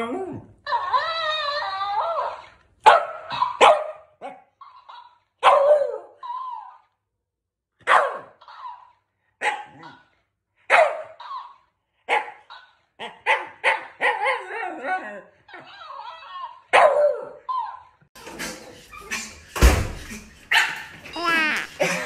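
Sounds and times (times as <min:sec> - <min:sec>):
dog barking: 0:02.8 - 0:06.2, 0:07.8 - 0:10.1, 0:10.7 - 0:11.5, 0:12.1 - 0:14.5, 0:16.7 - 0:17.6, 0:20.5 - 0:20.9.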